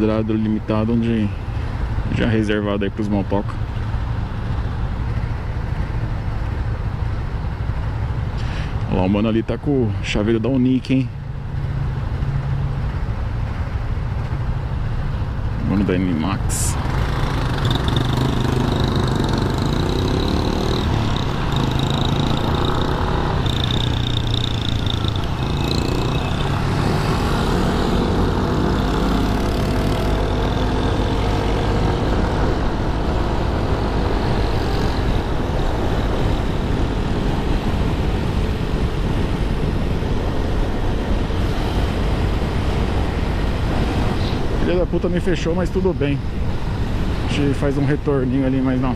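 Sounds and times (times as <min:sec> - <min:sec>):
surrounding cars: 0:00.0 - 0:48.9
scooter engine running: 0:16.8 - 0:40.2.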